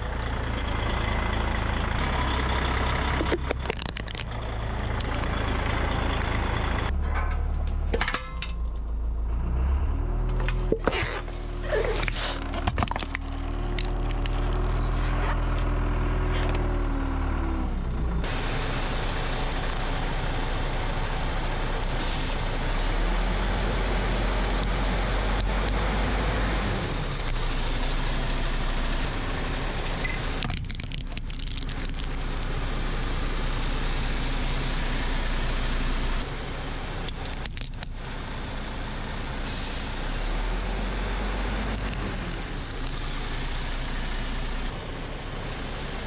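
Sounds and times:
vehicle engines running: 0.0 - 46.0
tyres crushing plastic: 3.2 - 4.3, 11.8 - 14.7, 30.3 - 32.5, 37.1 - 38.0
heavy engine revving: 9.2 - 36.3, 39.3 - 44.8.

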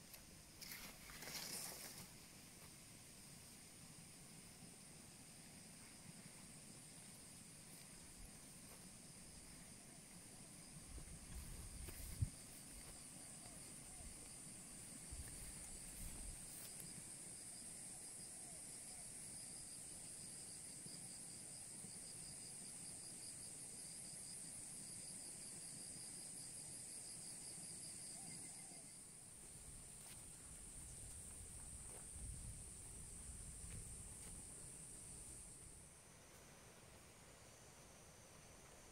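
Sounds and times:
lower pulsing insect trill: 0.0 - 38.9
high-pitched insect trill: 0.6 - 2.1.

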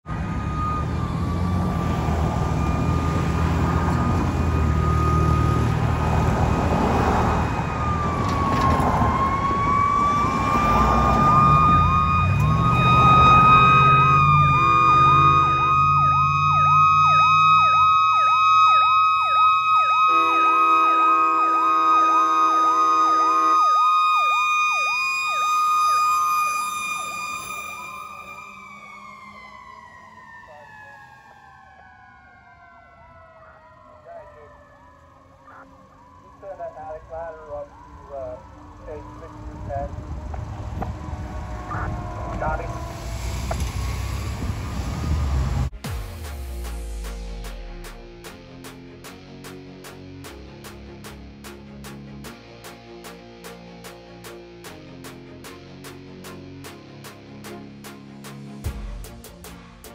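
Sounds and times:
heavy vehicle rumble: 0.0 - 26.2, 34.4 - 59.9
yelp siren: 0.1 - 45.6
steady siren tone: 0.1 - 46.1
truck train horns: 9.8 - 18.0, 19.0 - 24.8, 37.8 - 45.7.

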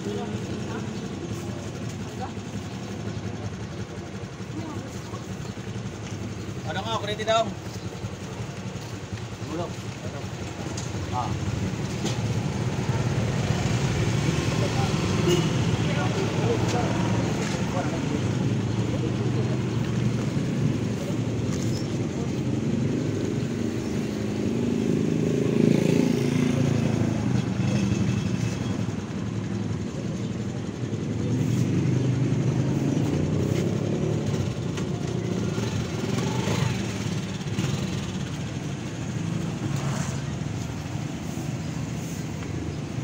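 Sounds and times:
street traffic rumble: 0.0 - 43.0.

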